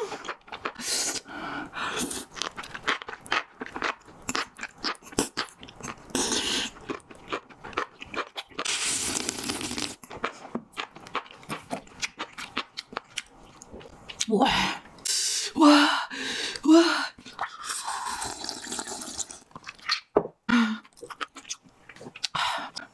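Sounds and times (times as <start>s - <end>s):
wet crunchy chewing: 2.0s - 14.3s.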